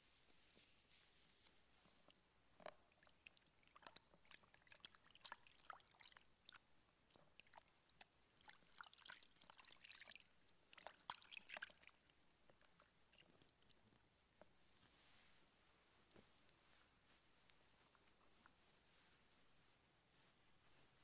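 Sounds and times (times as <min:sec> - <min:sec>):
water splashing in a basin: 0:02.9 - 0:07.8, 0:08.4 - 0:12.1.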